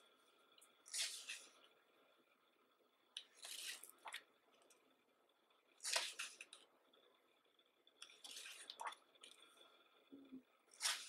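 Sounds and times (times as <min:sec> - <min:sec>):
book pages turning: 0:05.8 - 0:06.6.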